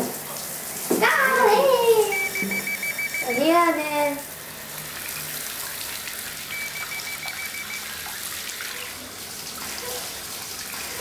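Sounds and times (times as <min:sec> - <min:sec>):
short high-pitched beeps: 0:02.1 - 0:03.6, 0:06.5 - 0:07.9
tap water pouring into tub: 0:04.2 - 0:11.0.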